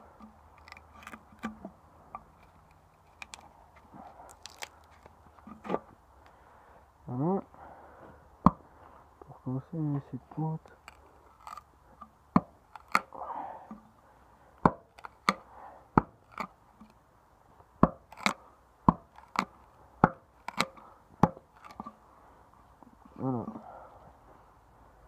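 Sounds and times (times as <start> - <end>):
knife stabbing into wooden board: 17.8 - 22.0.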